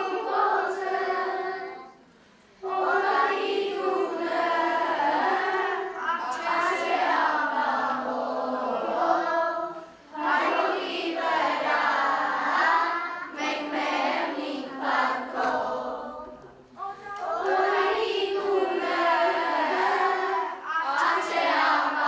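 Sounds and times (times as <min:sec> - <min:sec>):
children's choir singing: 0:00.0 - 0:22.0.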